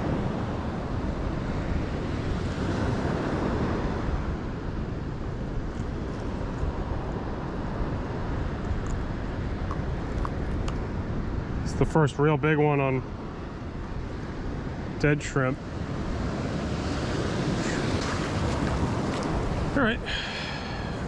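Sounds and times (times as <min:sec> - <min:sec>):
surf washing: 0:00.0 - 0:21.0
wind buffeting microphone: 0:15.6 - 0:21.0.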